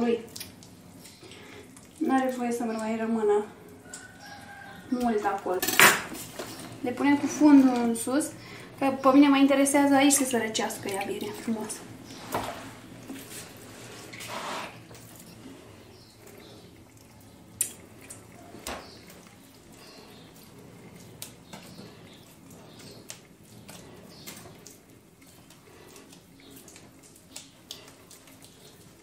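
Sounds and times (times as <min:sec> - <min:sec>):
water splashing and dripping: 0:09.8 - 0:12.1.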